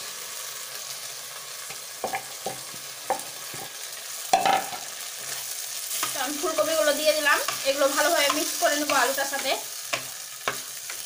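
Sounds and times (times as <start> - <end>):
food sizzling in a frying pan: 0.0 - 11.0
florets knocking into pan: 4.3 - 4.9.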